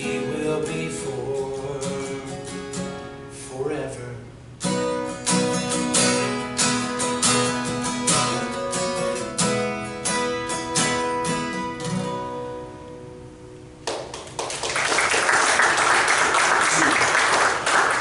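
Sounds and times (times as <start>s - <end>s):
acoustic guitar strummed chords: 0.0s - 13.8s
audience applause: 13.9s - 18.0s.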